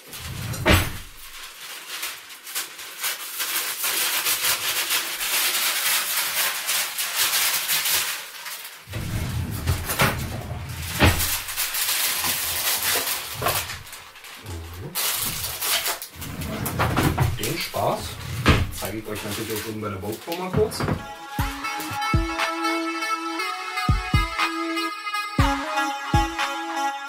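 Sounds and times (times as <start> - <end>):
baking paper crinkling: 0.0 - 20.8
stiff paper crackles: 0.9 - 20.6
music: 20.8 - 27.0.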